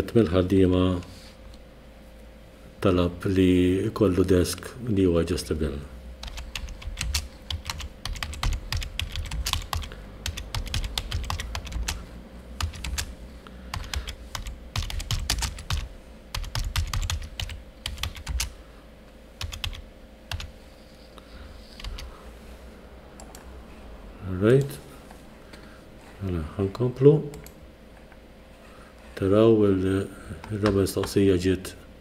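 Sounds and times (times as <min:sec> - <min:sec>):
faint steady hum: 0:00.0 - 0:32.0
typing on keyboard: 0:06.2 - 0:12.0, 0:12.6 - 0:13.1, 0:13.7 - 0:18.5, 0:19.4 - 0:20.5, 0:21.8 - 0:22.1.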